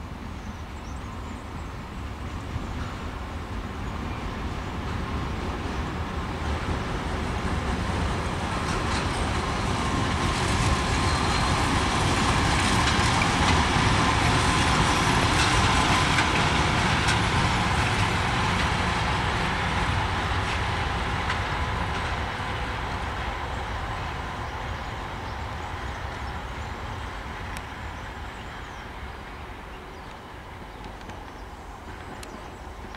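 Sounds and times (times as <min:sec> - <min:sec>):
diesel locomotive engine rumble: 0:00.0 - 0:32.9
wheels on rails: 0:05.9 - 0:28.8.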